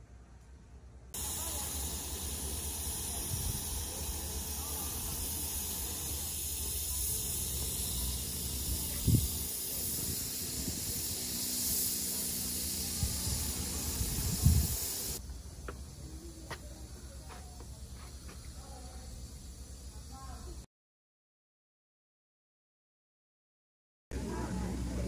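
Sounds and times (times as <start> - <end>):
wind on microphone: 8.6 - 11.2, 12.9 - 15.0.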